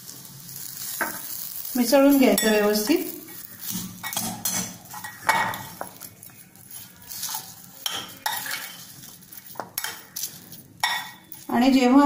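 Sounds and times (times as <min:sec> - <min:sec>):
spoon scraping glass bowl: 0:06.7 - 0:11.4.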